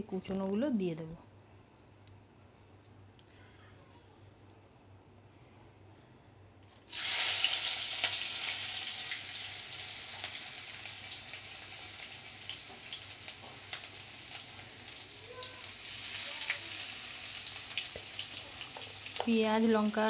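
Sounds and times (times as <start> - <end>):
vegetables sizzling in hot oil: 6.9 - 20.0.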